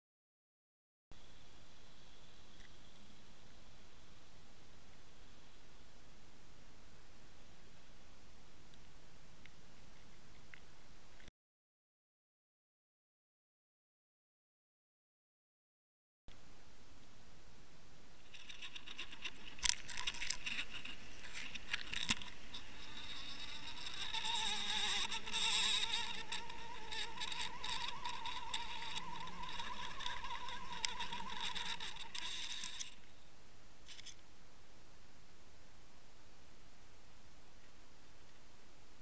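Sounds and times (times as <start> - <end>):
underwater buzzing whine: 18.2 - 34.2
faint hiss: 32.8 - 39.0.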